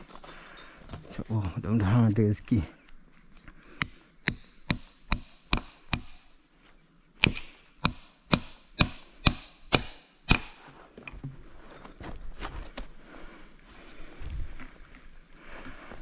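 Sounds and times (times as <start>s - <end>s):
hammer striking nail into wood: 3.8s - 6.3s, 7.2s - 10.6s.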